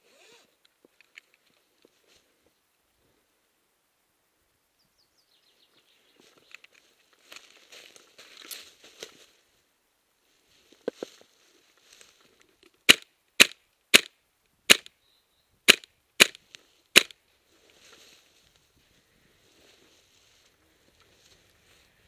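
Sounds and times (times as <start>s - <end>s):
rustling in dry leaves: 6.0s - 12.6s, 16.4s - 22.0s
airsoft gun shots: 12.9s - 14.1s, 15.7s - 16.4s.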